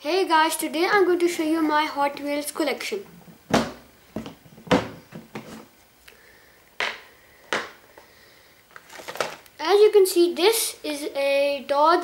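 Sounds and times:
blister pack knocks and rustles: 8.7s - 9.4s.

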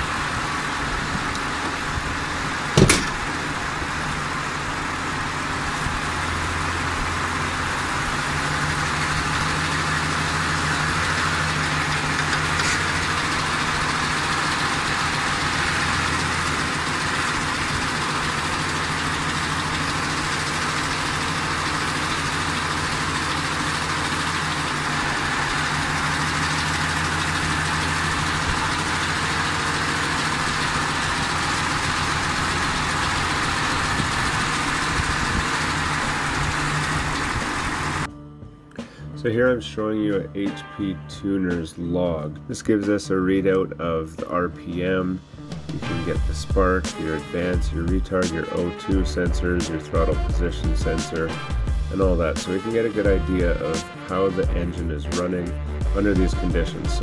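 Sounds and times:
engine idling with ticking clatter: 0.0s - 38.1s, 45.5s - 57.0s
sharp click: 2.8s - 3.3s.

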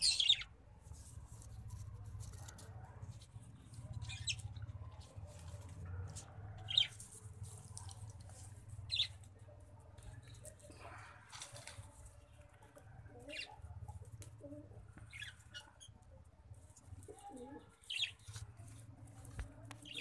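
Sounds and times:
pigeons cooing: 12.8s - 15.8s, 17.0s - 18.2s.

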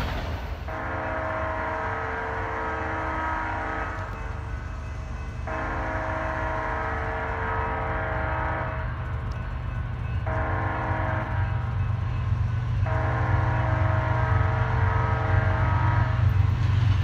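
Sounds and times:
locomotive air horn: 0.7s - 4.2s, 5.4s - 9.0s, 10.3s - 11.7s, 12.8s - 16.4s.

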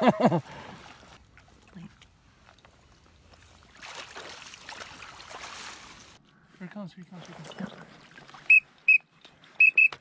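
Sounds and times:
dog sloshing through water: 0.9s - 6.2s.

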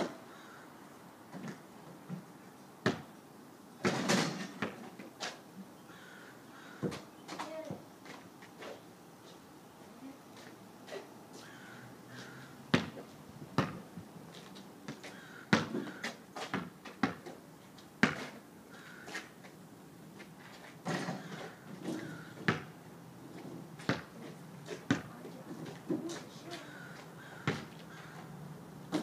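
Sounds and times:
basketball bouncing on pavement: 2.8s - 3.1s, 3.8s - 4.9s, 6.8s - 7.4s, 12.2s - 13.9s, 14.9s - 17.4s, 18.0s - 18.9s, 20.8s - 22.8s, 23.8s - 26.2s, 26.9s - 28.2s.

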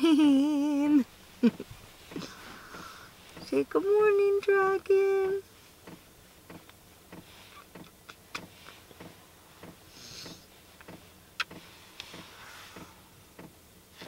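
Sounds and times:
soft hiss: 0.0s - 14.0s
bedding rustling: 0.7s - 6.4s
faint ticks and clicks: 1.4s - 4.9s, 5.8s - 13.6s.

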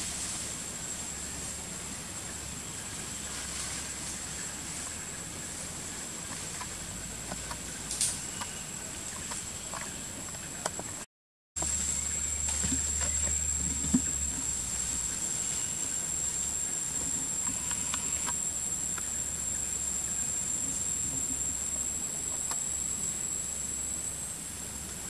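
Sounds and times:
faint ticks and rustles: 0.0s - 11.0s, 11.6s - 23.4s
high-pitched whine: 11.6s - 25.0s.

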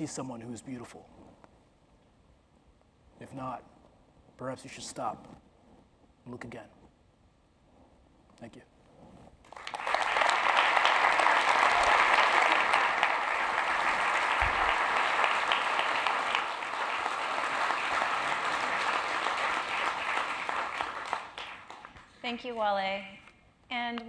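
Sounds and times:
audience applauding: 9.4s - 22.2s.

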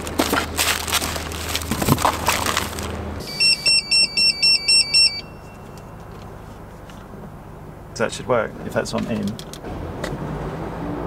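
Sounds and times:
rummaging through cardboard box: 0.0s - 3.0s
two-pitch electronic alarm beeps: 3.2s - 6.0s.

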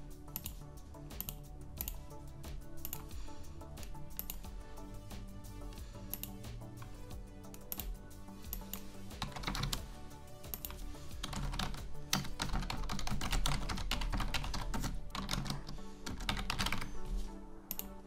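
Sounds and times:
quiet background music: 0.0s - 18.0s
keyboard typing: 0.3s - 2.0s, 4.1s - 4.5s, 7.5s - 17.0s.

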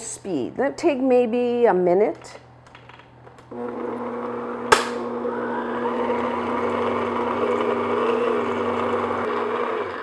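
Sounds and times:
stand mixer motor running: 3.5s - 10.0s.

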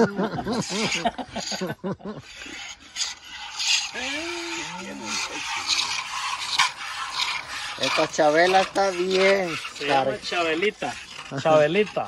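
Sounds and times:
milk squirting into cup: 2.5s - 11.4s.

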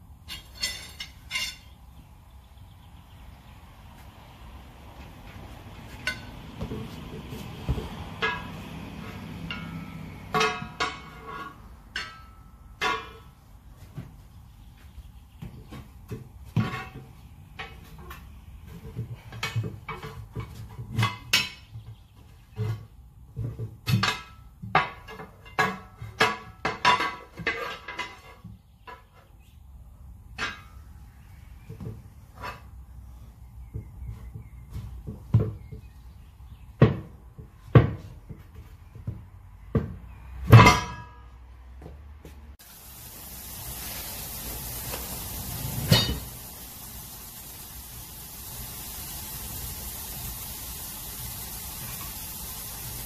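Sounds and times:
tire irons clanking on wheel rim: 0.2s - 1.8s, 5.2s - 14.2s, 15.4s - 29.2s, 30.4s - 31.0s, 33.6s - 41.4s, 44.7s - 46.6s
steady hiss: 42.6s - 53.0s.

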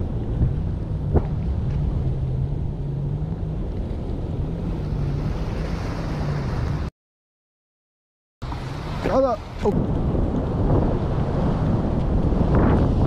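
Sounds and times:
wind buffeting microphone: 0.0s - 6.9s, 8.5s - 13.0s
surf washing over rocks: 8.4s - 13.0s.

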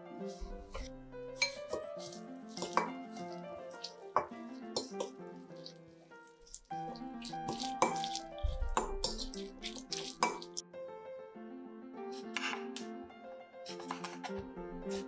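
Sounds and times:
background music: 0.0s - 15.0s
fork clinking against glass bowl: 0.8s - 5.8s, 7.2s - 10.6s.

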